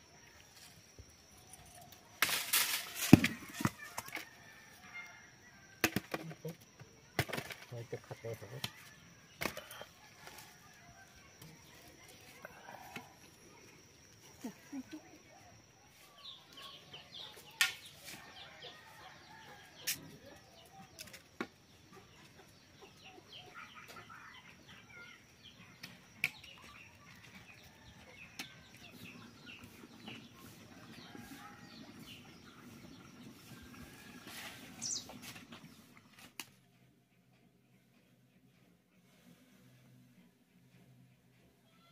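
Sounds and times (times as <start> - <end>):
thin steady high tone: 0.0 - 35.2
small birds chirping: 19.8 - 39.2.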